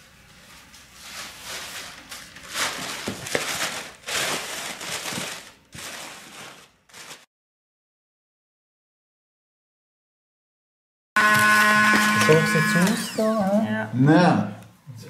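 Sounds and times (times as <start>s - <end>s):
packing paper rustling and crinkling: 0.4s - 7.3s.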